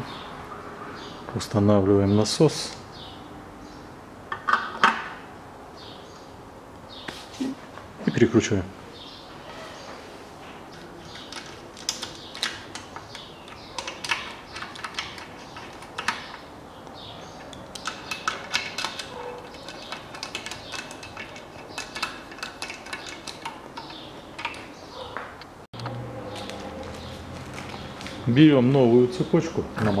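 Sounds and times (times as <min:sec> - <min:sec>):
hand tool clicking on bolts: 0:17.5 - 0:24.7.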